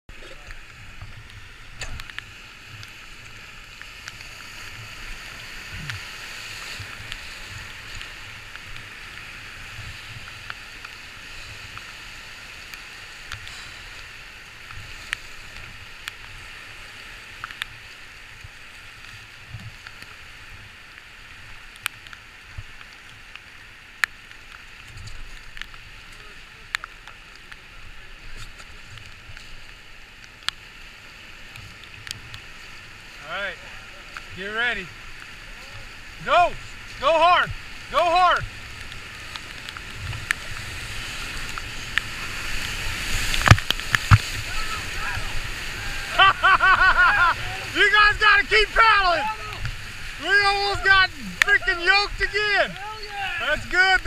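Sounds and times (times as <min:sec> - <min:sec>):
river rapids hissing: 0:00.1 - 0:54.0.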